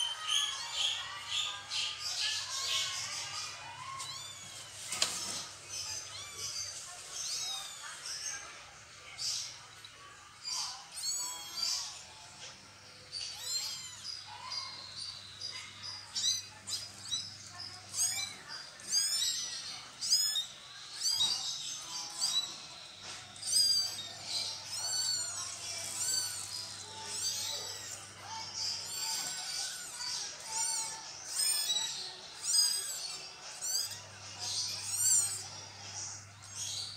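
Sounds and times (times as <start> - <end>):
kittens mewing: 13.2 - 15.0, 15.7 - 22.7, 23.4 - 36.8.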